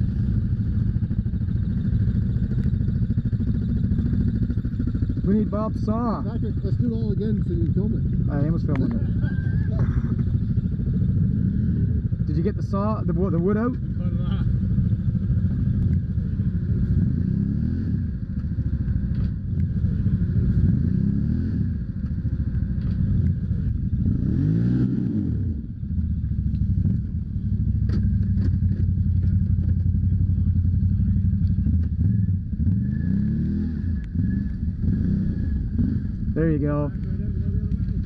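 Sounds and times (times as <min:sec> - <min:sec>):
quad engine revving: 0:19.9 - 0:21.7, 0:24.0 - 0:25.6, 0:31.6 - 0:38.0.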